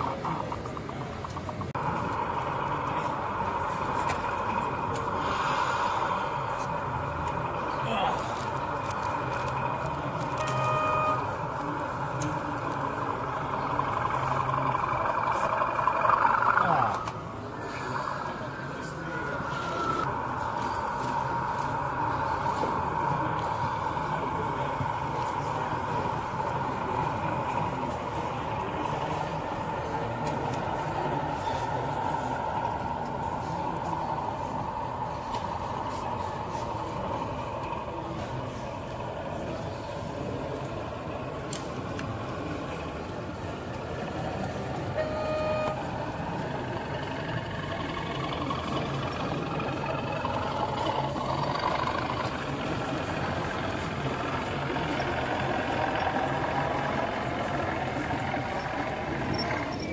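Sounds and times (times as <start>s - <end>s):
faint hall chatter: 0.0s - 59.9s
model locomotive engine hum: 0.0s - 59.9s
short horn toot: 10.4s - 11.4s.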